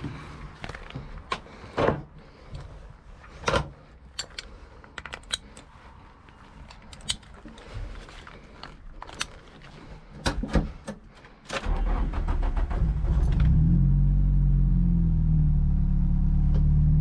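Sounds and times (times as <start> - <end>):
metal latch plates clinking: 3.5 - 5.7
buckle clicks: 4.0 - 7.7, 8.6 - 9.7.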